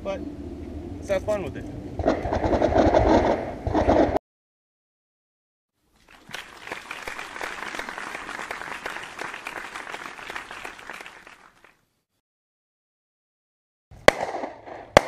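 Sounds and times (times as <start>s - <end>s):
crowd applause: 6.0s - 11.8s.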